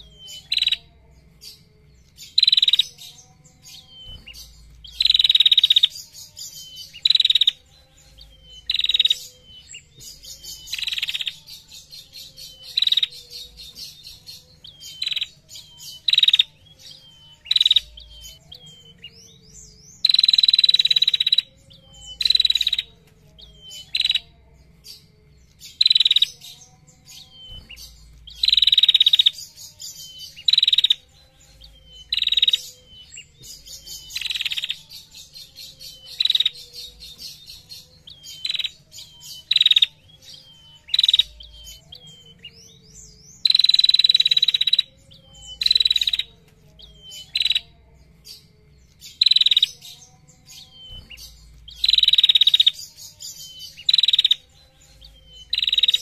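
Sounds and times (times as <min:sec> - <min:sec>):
warbler trilling song: 0:00.0 - 0:56.0.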